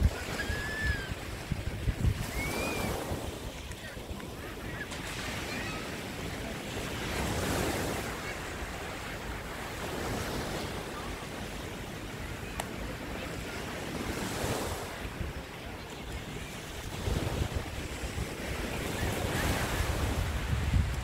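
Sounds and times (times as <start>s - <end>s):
waves breaking on a sandy beach: 0.0s - 21.0s
wind rumbling on the microphone: 0.0s - 21.0s.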